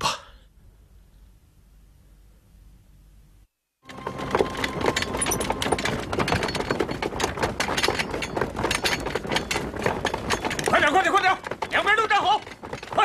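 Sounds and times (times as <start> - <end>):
hurried footsteps on stone: 3.8 - 13.0.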